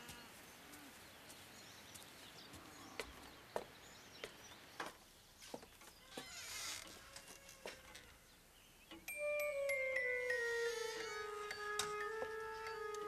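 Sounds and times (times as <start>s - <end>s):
faint outdoor hiss: 0.0s - 13.0s
footsteps on wooden boards: 1.3s - 8.1s, 11.8s - 13.0s.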